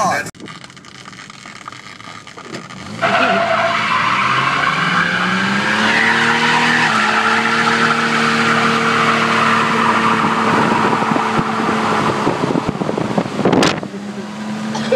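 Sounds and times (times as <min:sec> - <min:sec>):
tire squealing on pavement: 0:00.0 - 0:14.7
short crackles: 0:00.4 - 0:03.0
engine revving: 0:00.8 - 0:14.9.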